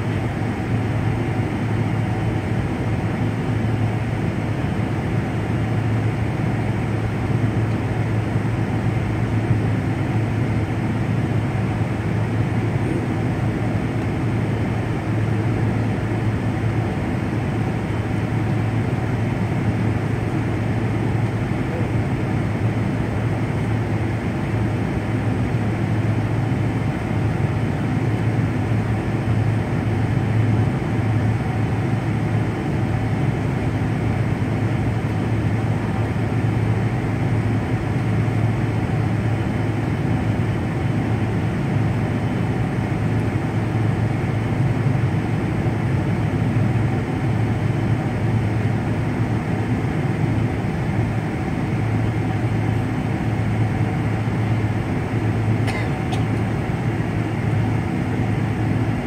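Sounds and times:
jet engines idling: 0.0 - 59.0.

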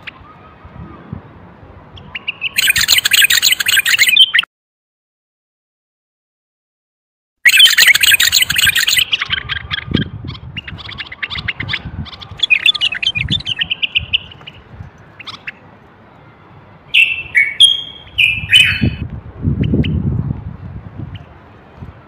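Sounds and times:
bird singing: 2.0 - 4.5, 7.5 - 15.6, 16.9 - 19.0.

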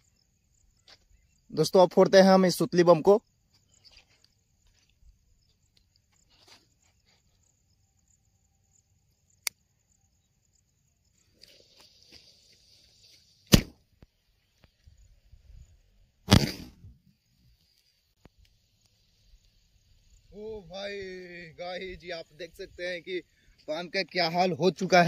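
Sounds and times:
firecracker bang: 13.5 - 13.8, 16.2 - 16.9.

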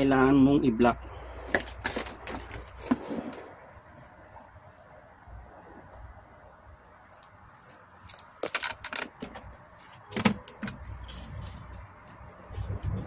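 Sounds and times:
tape crackling and tearing: 7.1 - 9.4.

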